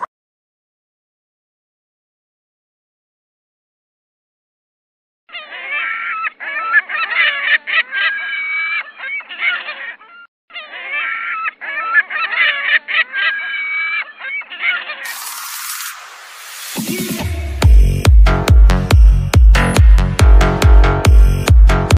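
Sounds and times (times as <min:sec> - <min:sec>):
bird squawking and honking calls: 0:05.3 - 0:15.8.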